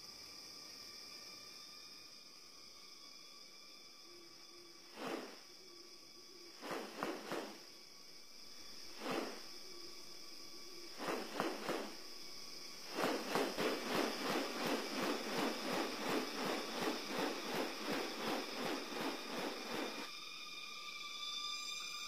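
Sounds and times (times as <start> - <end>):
high insect drone: 0.0 - 22.0
bird wings rustling: 5.0 - 5.4, 6.6 - 7.7, 8.8 - 9.6, 11.0 - 20.1.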